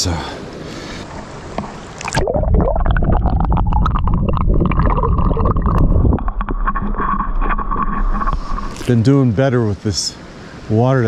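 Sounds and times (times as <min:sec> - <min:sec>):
underwater rumble of moving water: 0:02.2 - 0:09.2
underwater clicks and knocks: 0:02.9 - 0:08.9.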